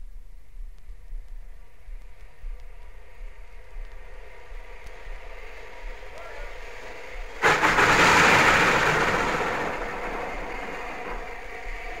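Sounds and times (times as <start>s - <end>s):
steam locomotive drawing away: 4.3s - 12.0s.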